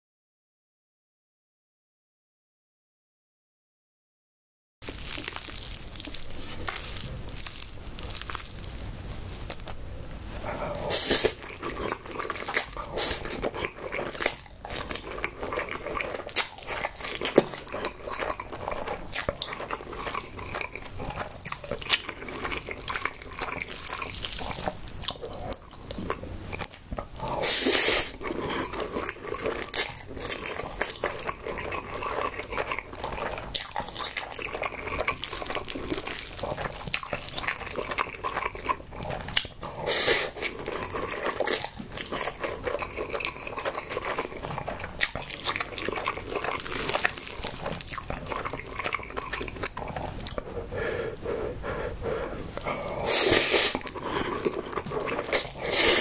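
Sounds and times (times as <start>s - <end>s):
noodle slurps: 10.5s - 14.3s, 27.2s - 32.2s, 39.0s - 51.2s, 51.8s - 56.0s
wet chewing mouth clicks: 11.0s - 56.0s.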